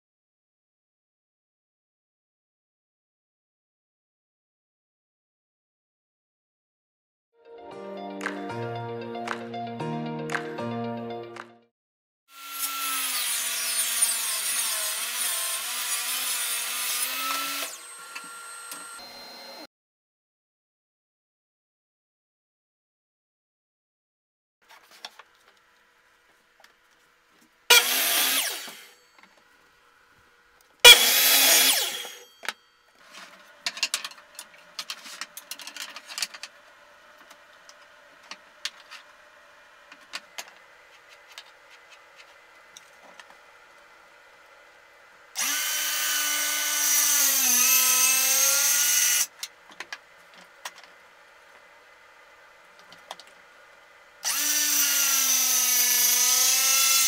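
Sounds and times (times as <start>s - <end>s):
loud bursts of tool noise: 12.3s - 19.0s, 27.7s - 29.1s, 30.8s - 32.5s, 45.4s - 49.4s, 54.2s - 57.0s
circular saw cutting wood: 12.3s - 19.4s, 27.7s - 29.2s, 30.8s - 35.4s, 45.4s - 49.4s, 54.2s - 57.0s.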